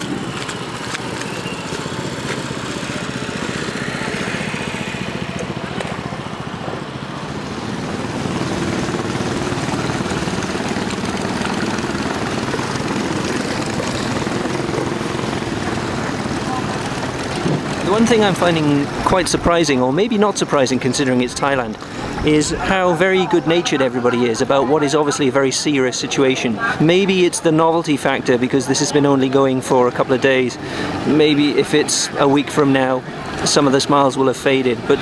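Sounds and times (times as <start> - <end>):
motorboat engine droning: 0.0 - 35.0.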